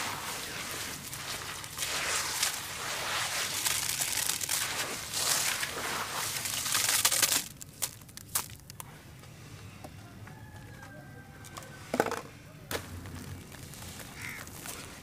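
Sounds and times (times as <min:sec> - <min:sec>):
wet ash crunching and squelching: 0:00.0 - 0:09.1, 0:12.7 - 0:15.0.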